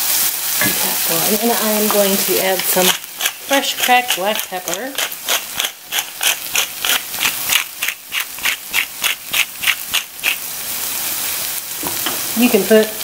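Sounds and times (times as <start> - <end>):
pepper mill grinding: 1.3 - 10.4.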